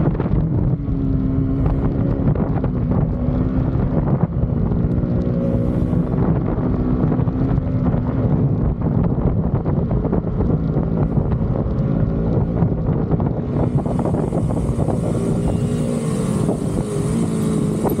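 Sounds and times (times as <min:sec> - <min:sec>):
motorcycle engine running: 0:00.0 - 0:18.0
wind noise on microphone: 0:00.0 - 0:18.0.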